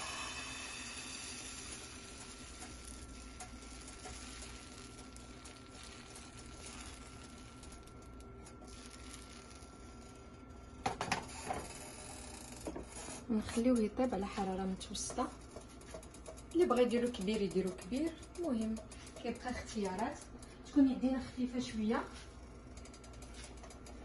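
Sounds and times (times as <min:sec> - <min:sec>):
batter hissing in frying pan: 0:00.0 - 0:07.9, 0:08.6 - 0:12.2.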